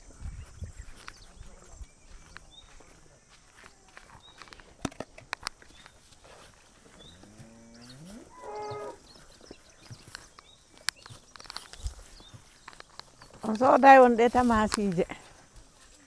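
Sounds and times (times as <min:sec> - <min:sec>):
cow mooing: 0:07.0 - 0:09.0.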